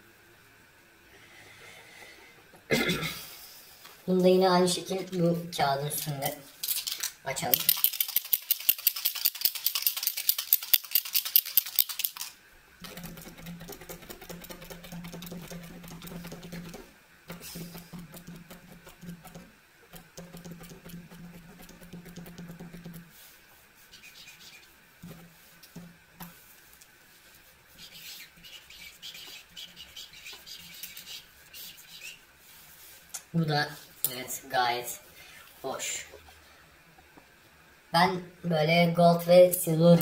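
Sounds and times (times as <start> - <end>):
steady low hum: 0.0 - 40.0
marker ball rattling: 6.6 - 23.0
marker tip scratching on paper: 23.9 - 24.7, 27.8 - 32.1.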